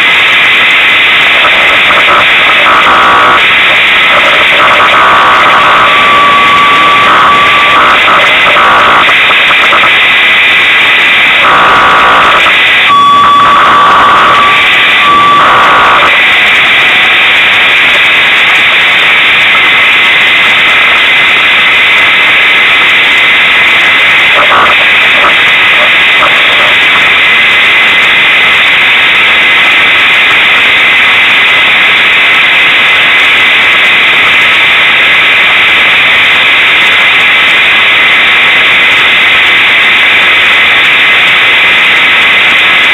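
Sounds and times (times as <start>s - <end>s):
distorted truck engine noise: 0.0s - 42.9s
whining tone: 0.3s - 19.6s, 23.6s - 27.4s.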